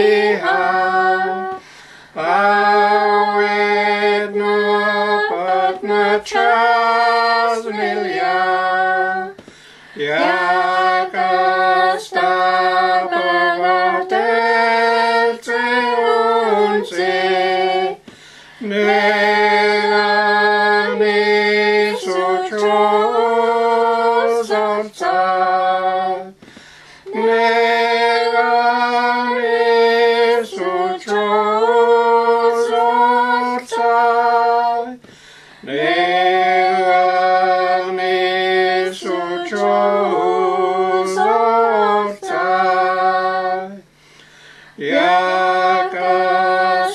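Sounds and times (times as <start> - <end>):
unaccompanied hymn singing: 0.0 - 46.9
woman singing: 2.2 - 26.5, 27.1 - 35.1, 38.8 - 43.8.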